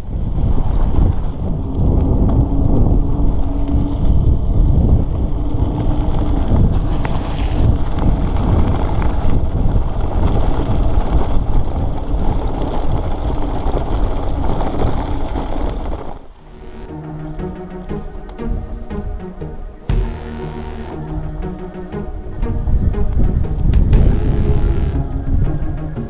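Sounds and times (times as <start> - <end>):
bicycle tyres rolling on gravel: 0.0 - 19.1
wind buffeting microphone: 0.0 - 20.1, 21.0 - 26.0.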